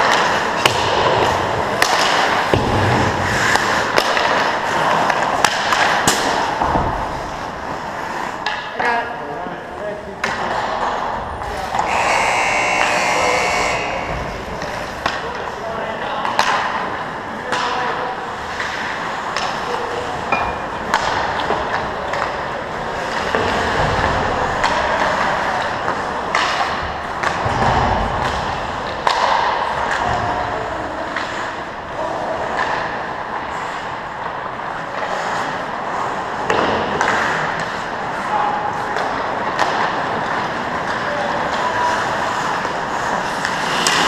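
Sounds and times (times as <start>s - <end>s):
skate blades scraping on ice: 0.0s - 8.5s, 35.0s - 44.0s
hockey sticks and puck clacking: 0.0s - 9.2s, 10.1s - 44.0s.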